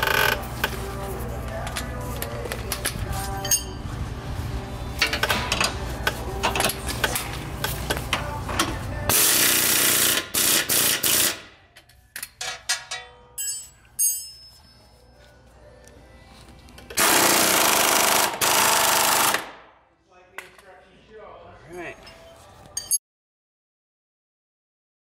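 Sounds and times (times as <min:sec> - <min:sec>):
impact wrench running: 0:09.1 - 0:11.4, 0:17.0 - 0:19.5.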